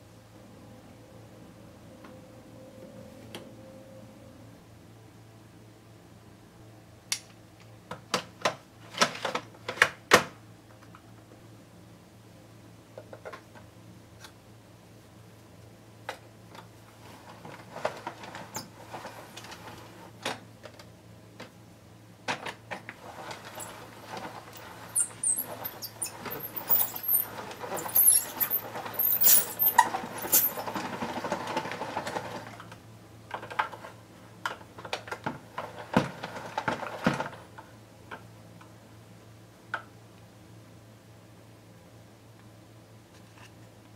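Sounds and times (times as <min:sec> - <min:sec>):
noodle machine gears rattling: 0:23.0 - 0:32.5.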